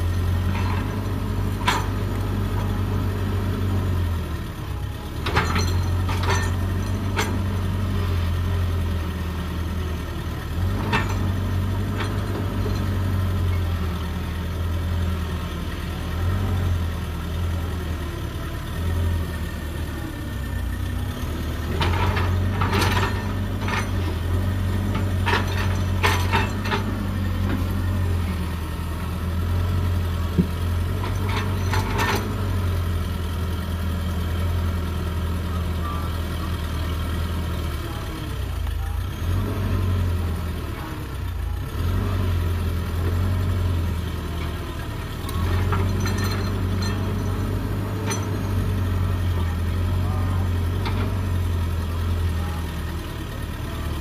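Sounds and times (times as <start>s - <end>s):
excavator diesel engine droning: 0.0s - 54.0s.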